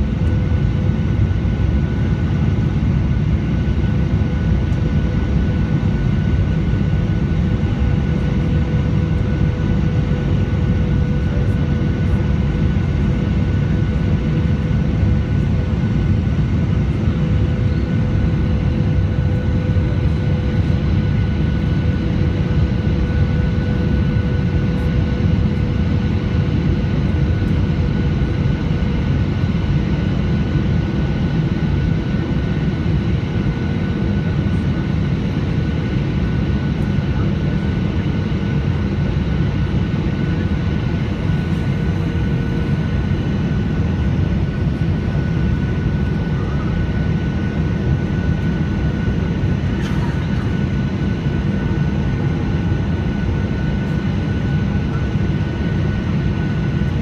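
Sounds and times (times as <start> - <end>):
airflow rush in cabin: 0.0 - 57.0
jet engines humming: 0.0 - 57.0.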